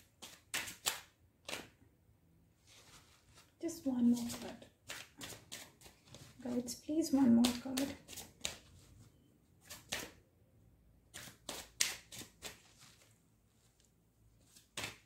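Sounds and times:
cards being shuffled: 0.0s - 1.8s, 2.6s - 10.2s, 11.1s - 15.0s.

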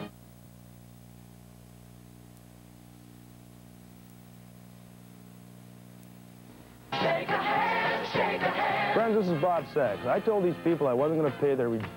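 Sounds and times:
faint electrical hum with hiss: 0.0s - 11.9s.

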